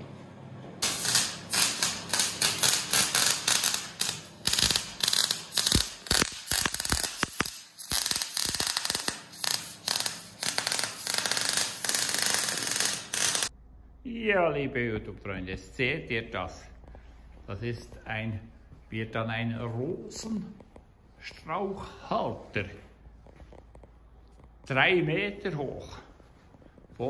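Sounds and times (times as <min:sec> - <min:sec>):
welding arc crackling: 0:00.8 - 0:13.5.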